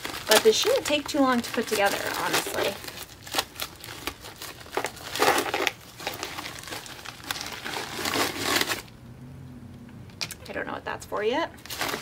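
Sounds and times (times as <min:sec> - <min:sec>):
plastic bag crinkling: 0:00.0 - 0:08.9, 0:11.6 - 0:12.0.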